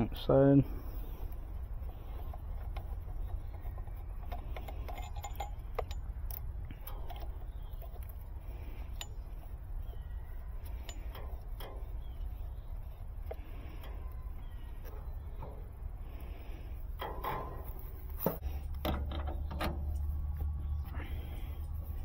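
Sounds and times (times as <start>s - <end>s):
steady low rumble: 0.0s - 22.0s.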